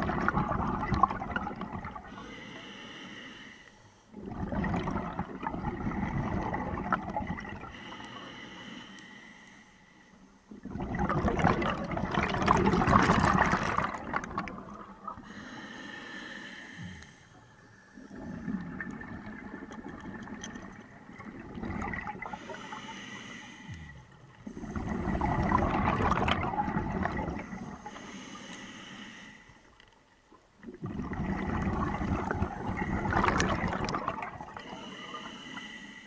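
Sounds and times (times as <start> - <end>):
exhaled bubbles rushing: 0.0 - 2.1, 4.2 - 7.7, 10.5 - 15.3, 18.0 - 22.4, 24.4 - 27.8, 30.6 - 34.7
regulator hissing inhalations: 2.1 - 4.1, 7.7 - 10.4, 15.2 - 18.1, 22.3 - 24.0, 27.7 - 29.7, 34.6 - 36.0.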